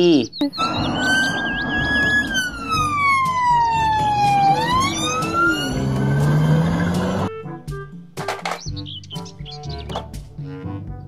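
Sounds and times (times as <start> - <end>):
car engine accelerating: 0.6 - 7.3
police siren wailing: 0.6 - 7.3.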